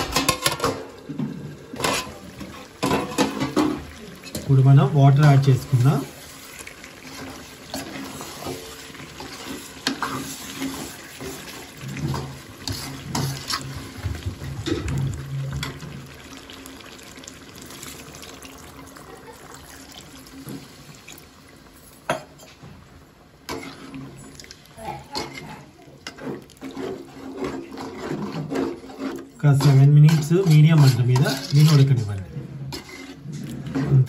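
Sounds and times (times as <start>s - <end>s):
metal ladle scraping a pan: 0.0s - 14.0s, 23.5s - 34.0s
water pouring into a pan: 0.0s - 34.0s.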